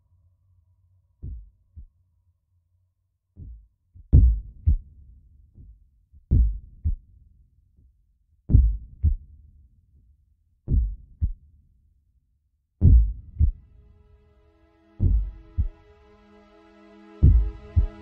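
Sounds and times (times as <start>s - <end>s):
heartbeat-like double thump music: 1.2s - 1.5s, 3.4s - 4.9s, 6.3s - 7.0s, 8.5s - 9.2s, 10.7s - 11.4s, 12.8s - 13.7s, 15.0s - 15.8s, 17.2s - 18.0s.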